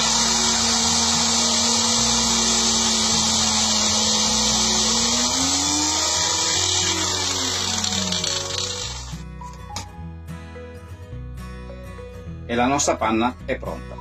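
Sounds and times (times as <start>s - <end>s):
blender motor whine: 0.0s - 9.2s.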